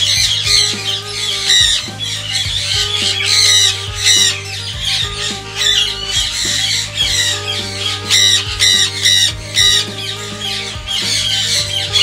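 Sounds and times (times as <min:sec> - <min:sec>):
parrots squawking: 0:00.0 - 0:12.0.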